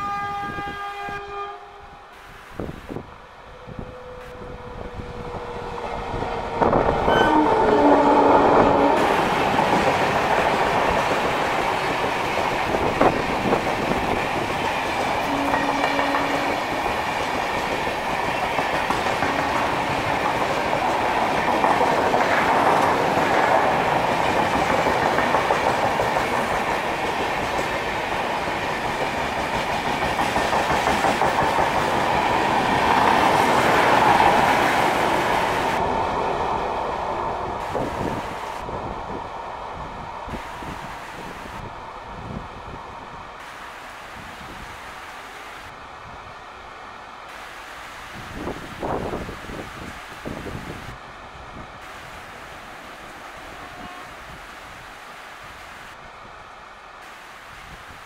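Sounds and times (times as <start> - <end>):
train wheels clattering over rails: 5.8 - 35.8.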